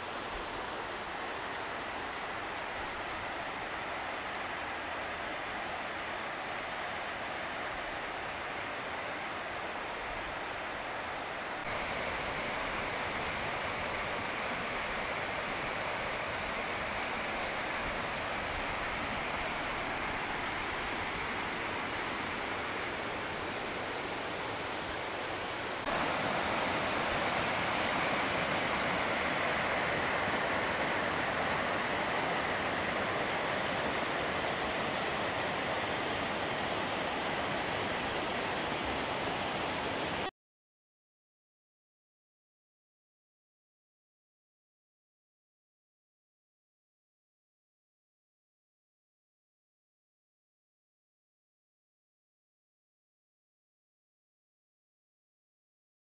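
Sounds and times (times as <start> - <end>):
creek rushing over rocks: 0.0 - 40.3.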